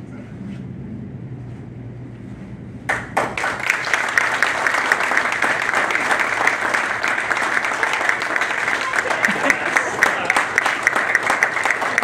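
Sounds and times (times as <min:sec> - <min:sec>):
low room hum: 0:00.0 - 0:12.0
people applauding: 0:02.9 - 0:12.0.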